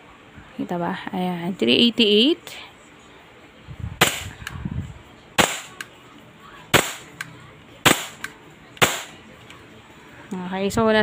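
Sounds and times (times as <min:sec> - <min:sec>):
airsoft pistol shots: 0:04.0 - 0:04.5, 0:05.4 - 0:05.9, 0:06.7 - 0:07.2, 0:07.8 - 0:09.2.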